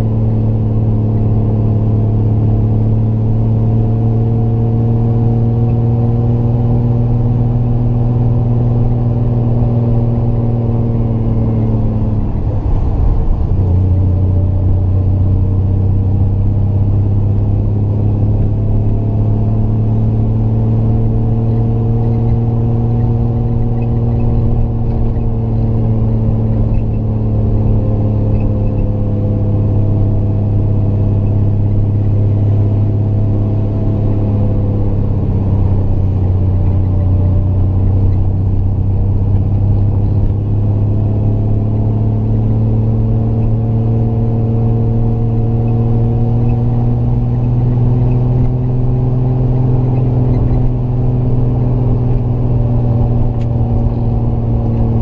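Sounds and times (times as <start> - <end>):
car engine pulling uphill: 0.0 - 55.0.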